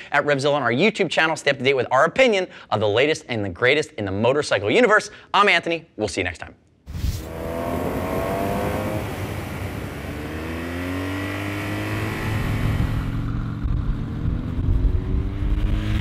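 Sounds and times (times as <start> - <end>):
motorcycle engine accelerating: 7.0 - 16.0.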